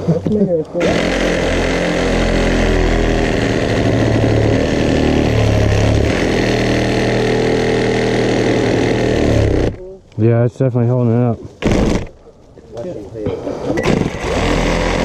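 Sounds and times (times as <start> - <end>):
reciprocating saw cutting wood: 0.7 - 9.9, 11.6 - 12.2, 13.8 - 15.0.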